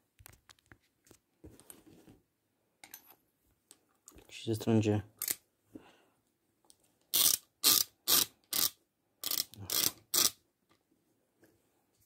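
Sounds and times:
ratchet clicking: 7.1 - 10.4.

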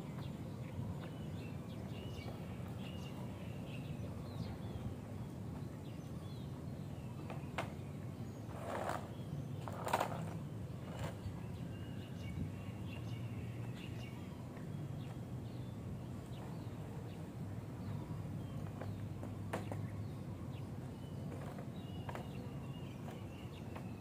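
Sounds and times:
small birds chirping: 0.0 - 24.0.

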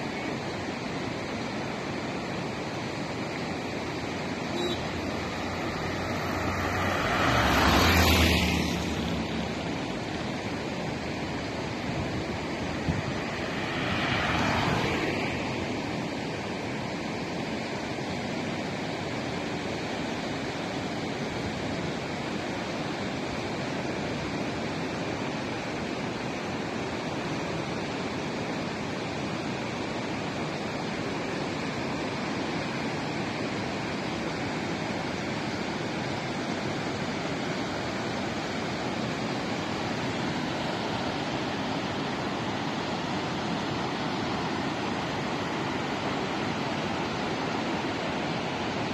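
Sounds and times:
rushing mountain river: 0.0 - 48.9
car passing: 3.8 - 17.0.

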